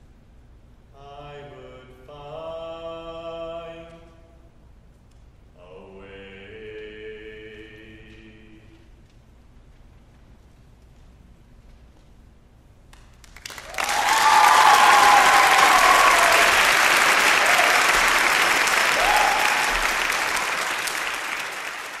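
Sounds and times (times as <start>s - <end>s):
audience applause: 13.2s - 22.0s
people cheering: 13.4s - 22.0s.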